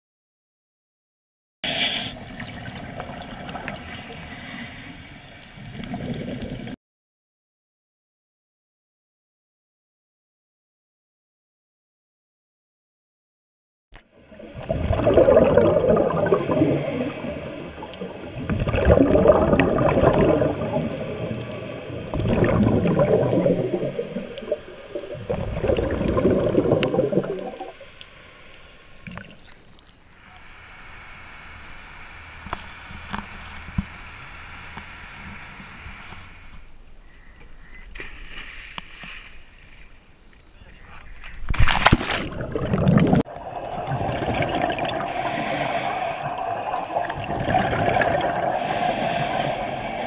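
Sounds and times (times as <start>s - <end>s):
bubbling underwater breaths: 14.2s - 29.4s, 42.2s - 50.0s
wake washing: 14.4s - 27.8s, 41.6s - 50.0s
boat engine: 30.0s - 36.8s.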